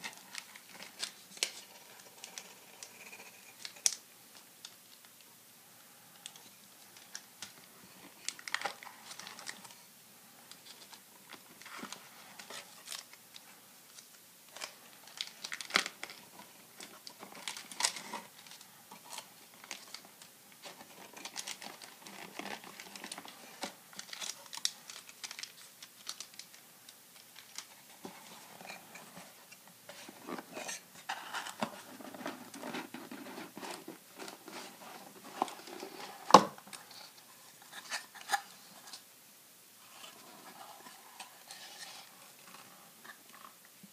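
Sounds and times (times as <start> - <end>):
foil wrappers crinkling: 13.9 - 27.7
cardboard rustling: 27.2 - 39.0.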